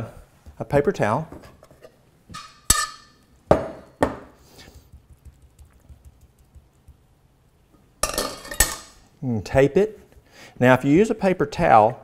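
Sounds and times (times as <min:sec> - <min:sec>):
metal pot and spoon knocking: 0:02.3 - 0:04.2.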